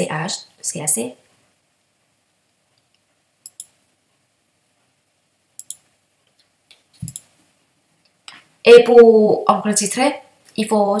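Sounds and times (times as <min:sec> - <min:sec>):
computer mouse clicks: 0:02.8 - 0:03.8, 0:05.6 - 0:05.9, 0:06.7 - 0:07.3.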